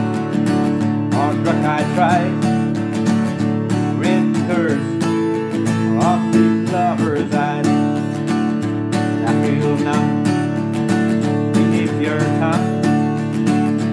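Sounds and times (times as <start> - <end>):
acoustic guitar strumming: 0.0 - 13.9.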